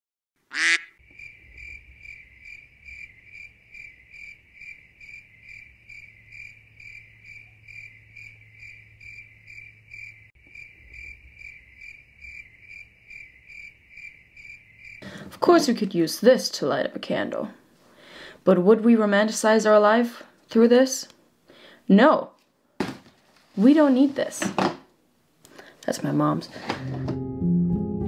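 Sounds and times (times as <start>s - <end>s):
cricket chirping: 1.0s - 15.0s.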